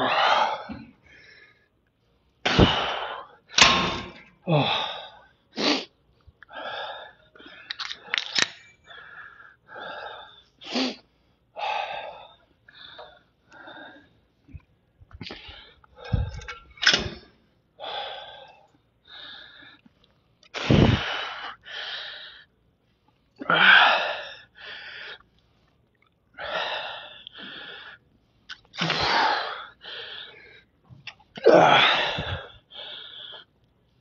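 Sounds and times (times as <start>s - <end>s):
man breathing forcefully: 2.4s - 5.4s, 15.2s - 16.5s, 17.8s - 19.8s, 20.6s - 22.5s, 26.4s - 28.0s, 28.8s - 30.7s, 31.6s - 33.5s.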